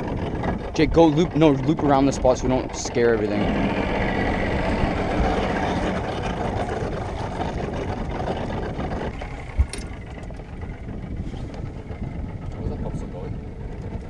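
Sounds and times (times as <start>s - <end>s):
rushing water: 0.0s - 10.5s
outboard motor running: 0.0s - 14.0s.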